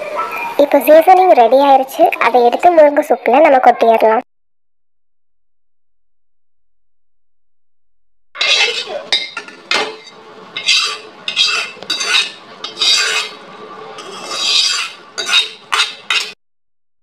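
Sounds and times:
spoon clinking against pan: 8.4s - 13.3s
metal spoon scraping a pan: 8.4s - 16.4s.

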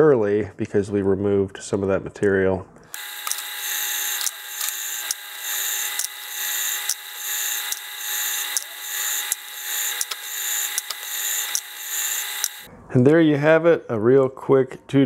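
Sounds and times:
motor whirring: 2.9s - 12.7s.

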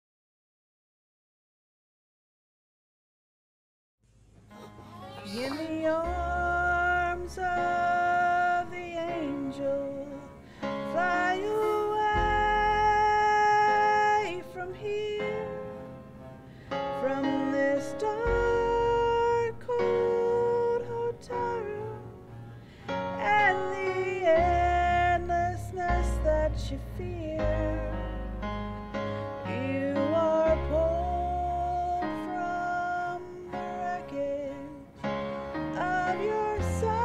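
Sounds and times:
piano accompaniment: 4.4s - 37.0s
woman singing: 4.6s - 15.7s, 17.0s - 22.1s, 23.2s - 28.1s, 29.5s - 34.9s, 35.7s - 37.0s
deep bass notes: 12.0s - 13.3s.

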